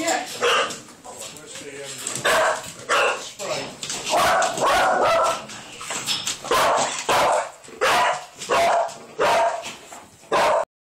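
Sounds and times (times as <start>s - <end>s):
dog barking: 0.4s - 0.8s, 2.2s - 3.3s, 4.1s - 5.5s, 6.5s - 9.7s, 10.3s - 10.7s.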